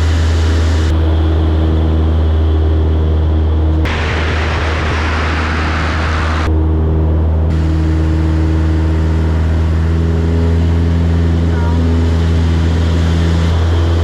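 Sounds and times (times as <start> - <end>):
propeller aircraft engine droning: 0.0 - 14.0
loud rush of wind: 3.8 - 9.8.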